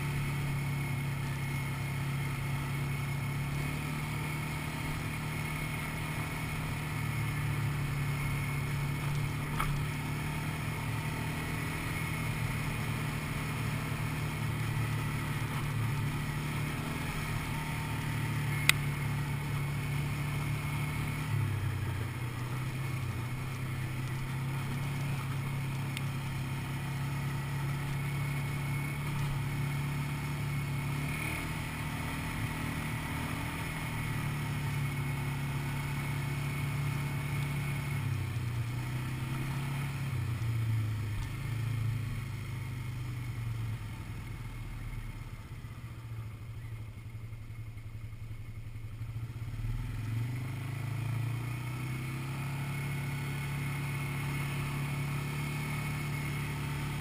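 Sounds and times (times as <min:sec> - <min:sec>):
quad bike engine running: 0:00.0 - 0:57.0
sharp click: 0:09.1 - 0:09.8.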